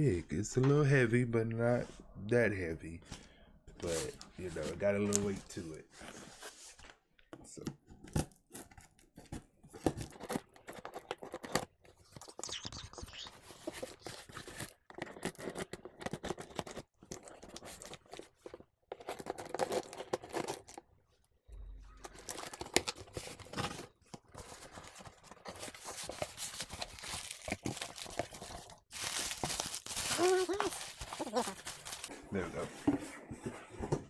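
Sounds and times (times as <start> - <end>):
cardboard scraping: 22.2 - 34.0
packing tape tearing: 25.9 - 32.1.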